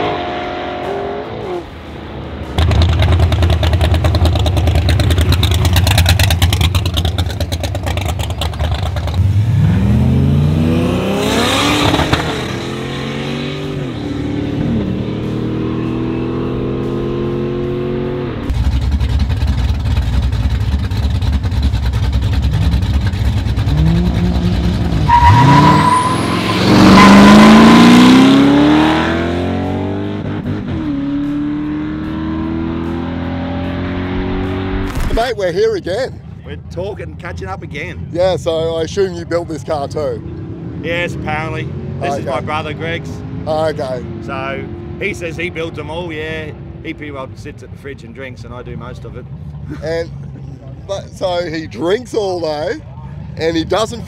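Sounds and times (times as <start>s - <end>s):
car engine revving hard: 2.6s - 18.6s, 22.2s - 34.7s.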